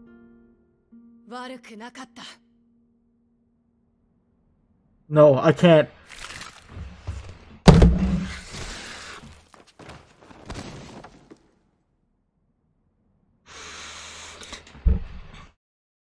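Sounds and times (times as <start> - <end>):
heavy thump: 6.8 - 8.5.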